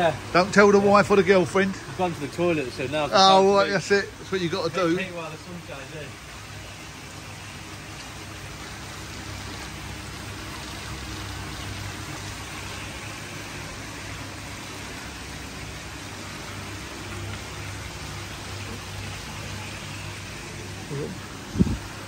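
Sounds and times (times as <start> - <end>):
low steady hum: 0.0 - 22.0
water splashing into tank: 6.1 - 22.0.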